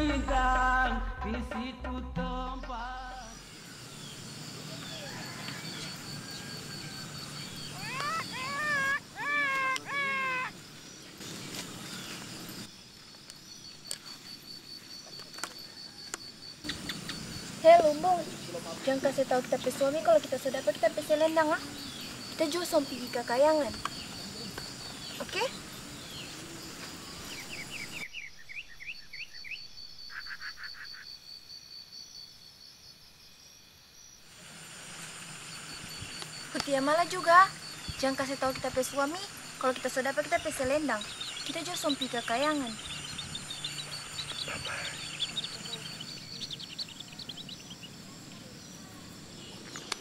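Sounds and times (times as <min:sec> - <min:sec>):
insect pulsing trill: 0:02.6 - 0:50.0
bird chirps: 0:02.9 - 0:12.7, 0:15.0 - 0:20.3, 0:21.0 - 0:31.3, 0:35.7 - 0:48.6.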